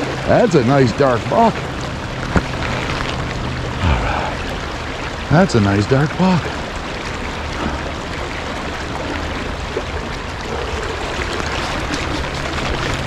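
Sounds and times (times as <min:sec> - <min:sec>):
creek water flowing: 0:00.0 - 0:13.0.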